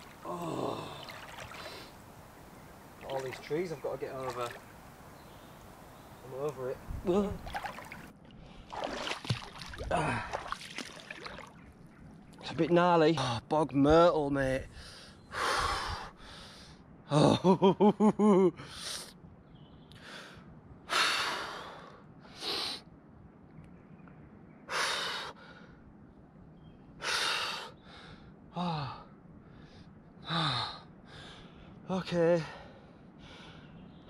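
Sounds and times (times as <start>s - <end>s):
man grunting: 0.2s - 1.0s
man breathing heavily: 14.7s - 16.8s, 20.0s - 22.8s, 27.0s - 31.8s, 32.4s - 33.8s.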